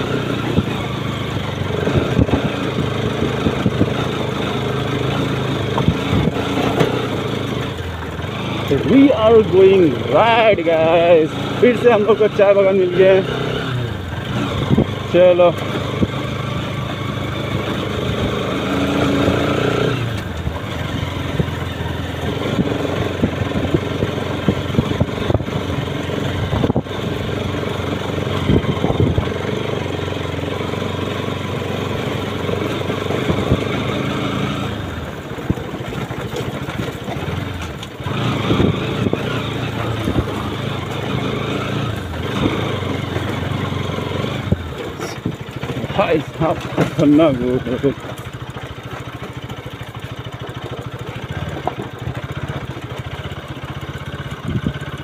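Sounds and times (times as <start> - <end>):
motorcycle engine revving: 0.0 - 55.0
knocks and rattles from bumps: 1.7 - 9.7, 32.0 - 55.0.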